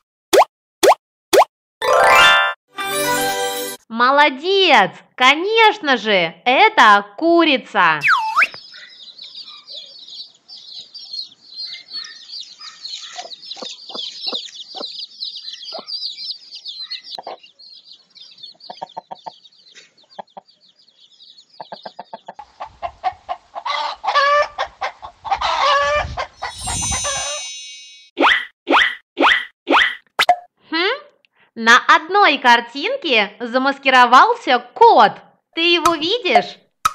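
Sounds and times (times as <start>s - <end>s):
chicken calls: 8.0s - 27.4s
chicks peeping: 8.1s - 27.2s
hen clucking softly: 13.0s - 15.0s, 16.9s - 17.5s, 18.5s - 19.4s, 21.6s - 26.6s
bright chime: 26.5s - 28.1s.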